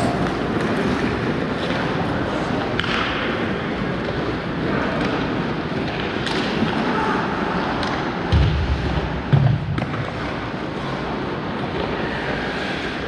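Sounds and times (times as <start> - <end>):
hockey sticks clicking on puck: 0.0 - 6.9, 7.7 - 8.2
skates scraping ice: 0.0 - 7.2, 9.8 - 13.0.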